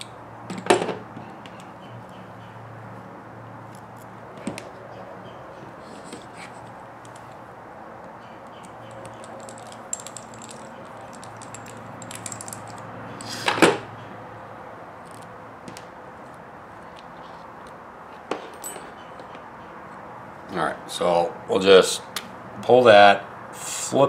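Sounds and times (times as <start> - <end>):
small parts clicking and rattling: 6.0 - 7.5, 8.4 - 13.4, 15.0 - 17.4.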